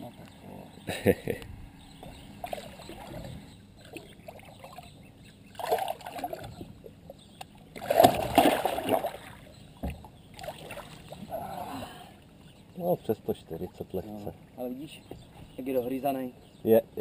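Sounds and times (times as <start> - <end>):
fish splashing in water: 5.5 - 6.5, 7.7 - 9.5, 10.3 - 11.2.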